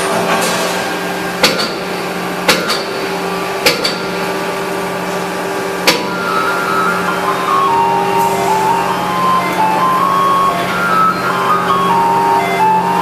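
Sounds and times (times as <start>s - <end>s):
stamping press humming: 0.0s - 13.0s.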